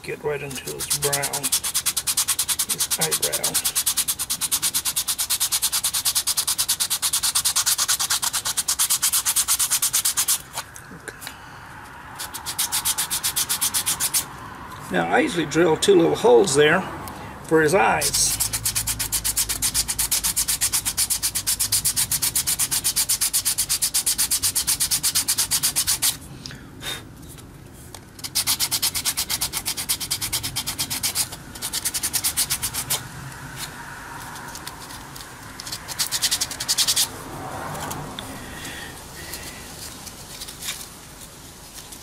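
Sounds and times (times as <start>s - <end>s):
sandpaper rubbing on wood: 0.4s - 10.6s, 12.2s - 14.3s, 18.0s - 26.2s, 28.2s - 37.2s.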